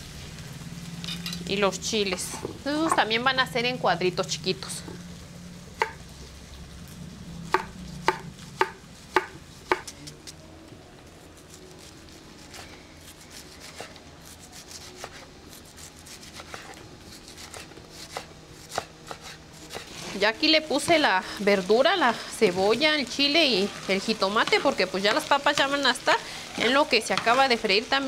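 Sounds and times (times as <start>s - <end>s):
knife chopping on wooden board: 5.8s - 6.0s, 7.5s - 9.9s, 15.9s - 20.0s.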